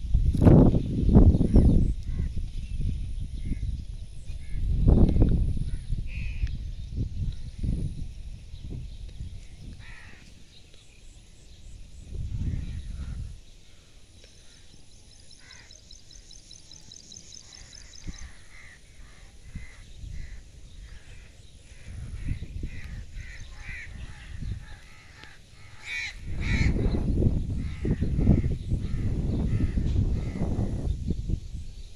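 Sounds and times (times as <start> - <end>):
crows cawing: 9.8 - 10.3, 15.4 - 15.8, 17.5 - 26.9, 27.6 - 30.8.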